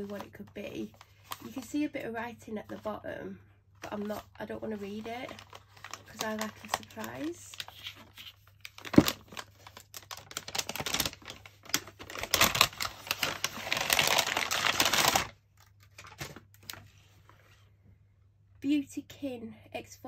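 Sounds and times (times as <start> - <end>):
wrapping paper tearing and crackling: 3.8 - 16.8.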